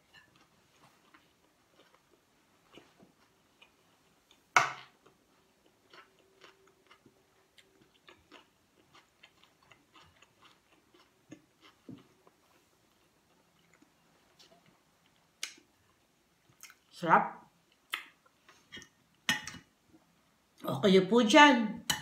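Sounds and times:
person chewing: 0:00.0 - 0:16.9.

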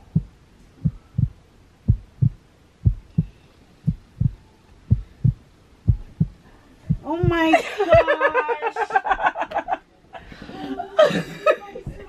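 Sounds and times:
heartbeat lub-dub: 0:00.0 - 0:08.1.

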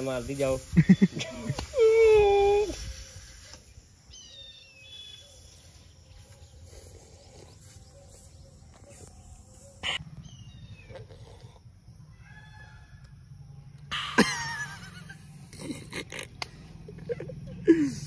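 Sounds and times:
faint bird chirps: 0:00.8 - 0:14.2.

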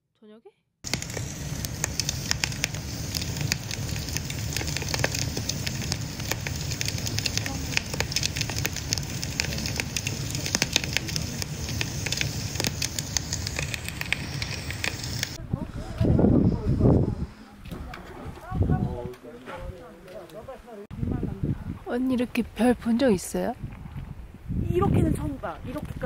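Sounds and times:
fire crackling in metal stove: 0:00.8 - 0:15.4.

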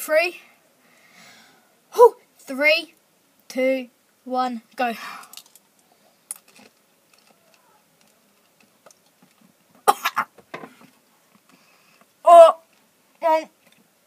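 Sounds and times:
boy coughing: 0:09.9 - 0:10.3.

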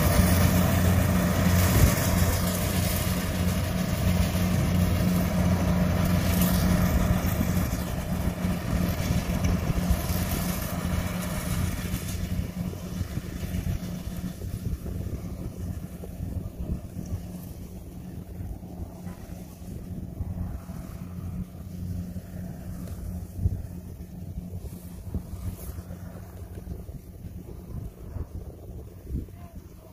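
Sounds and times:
combine harvester engine running: 0:00.0 - 0:29.9.

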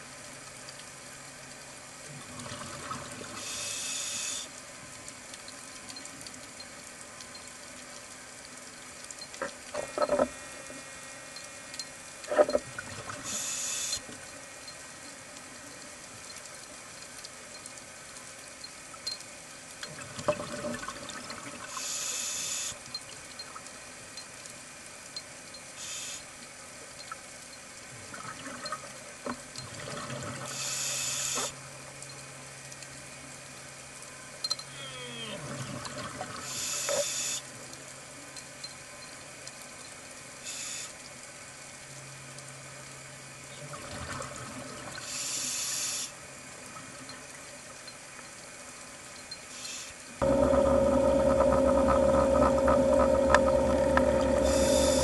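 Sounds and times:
scuba regulator breathing hisses: 0:03.4 - 0:04.5, 0:13.3 - 0:14.0, 0:21.7 - 0:22.8, 0:30.5 - 0:31.5, 0:36.4 - 0:37.4, 0:40.4 - 0:41.0, 0:45.0 - 0:46.2, 0:54.4 - 0:55.0
low steady hum: 0:37.4 - 0:55.0
bubbling: 0:50.2 - 0:55.0.

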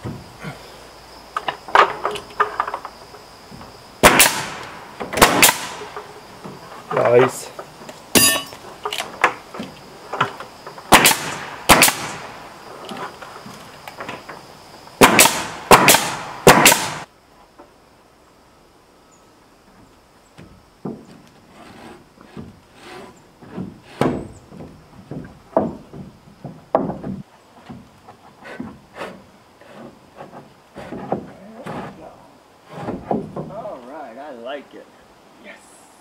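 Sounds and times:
nail gun firing: 0:04.0 - 0:05.9, 0:10.9 - 0:12.3, 0:15.0 - 0:17.0
knocks and taps of boards: 0:23.5 - 0:28.8, 0:32.8 - 0:33.6.

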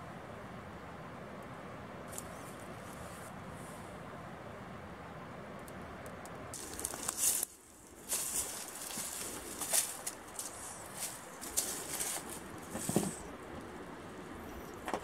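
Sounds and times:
footsteps on rock and dry leaves: 0:06.6 - 0:13.2
clothing and gear brushing: 0:08.1 - 0:13.2.

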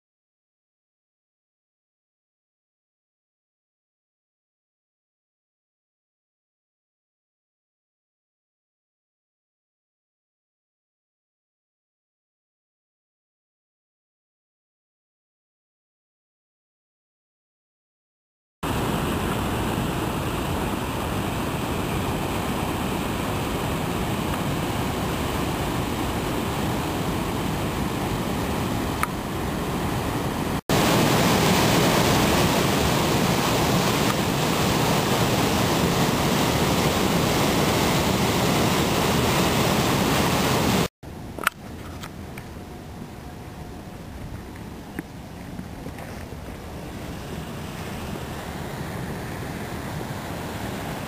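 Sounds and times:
river rapids rushing: 0:18.7 - 0:40.9, 0:46.2 - 0:51.0.

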